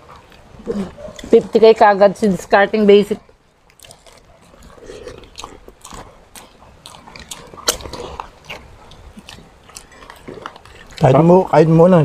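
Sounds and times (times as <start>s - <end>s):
chewing and biting: 0.0s - 1.5s, 3.2s - 12.0s
wet mouth clicks and smacks: 3.7s - 11.1s.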